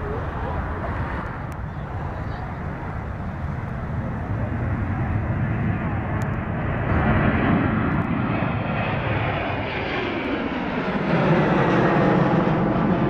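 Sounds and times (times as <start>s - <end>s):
jet airliner passing overhead: 0.0s - 13.0s.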